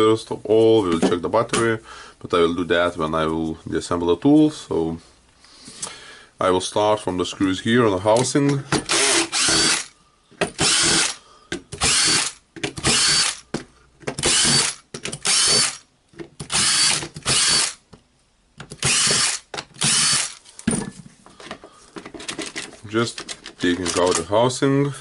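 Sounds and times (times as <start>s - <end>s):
cordless drill running: 8.9s - 9.9s, 10.6s - 11.2s, 11.8s - 13.4s, 14.2s - 15.8s, 16.5s - 17.8s, 18.8s - 20.4s.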